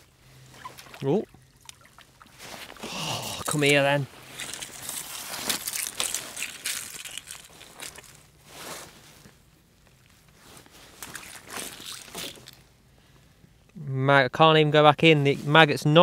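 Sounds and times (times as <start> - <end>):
crunching and rustling handling: 2.1 - 12.7.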